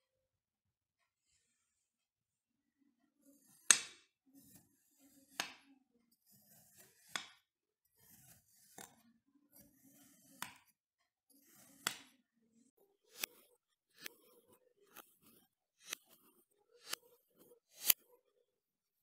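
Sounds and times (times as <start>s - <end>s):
blade tapping board: 3.6s - 4.6s, 5.3s - 5.7s, 7.0s - 7.4s, 10.0s - 10.7s, 11.4s - 12.2s, 14.9s - 18.0s.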